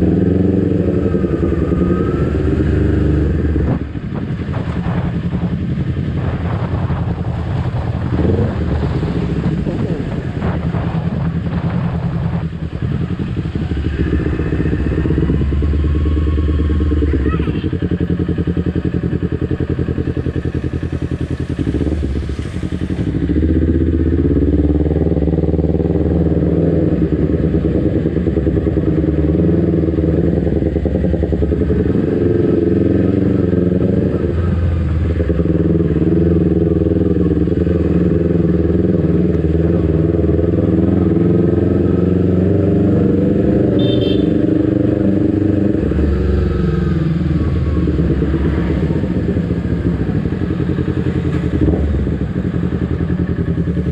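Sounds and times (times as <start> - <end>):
motorcycle engine running: 0.0 - 53.9.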